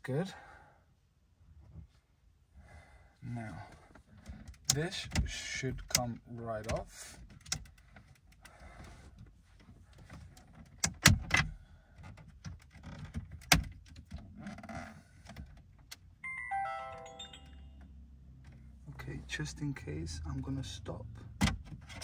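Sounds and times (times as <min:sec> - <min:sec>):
descending electronic chime: 0:16.2 - 0:17.8.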